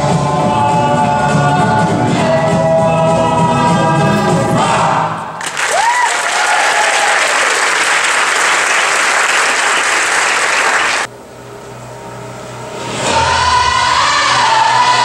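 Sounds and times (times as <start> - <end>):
audience applauding: 5.4 - 11.1.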